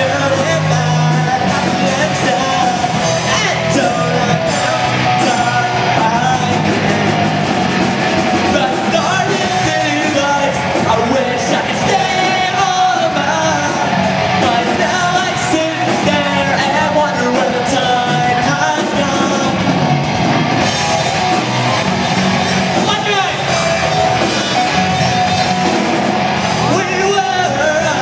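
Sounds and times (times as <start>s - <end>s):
person singing: 0.0s - 7.0s, 8.4s - 19.8s, 26.6s - 28.0s
drum kit: 0.0s - 28.0s
electric guitars: 0.0s - 28.0s.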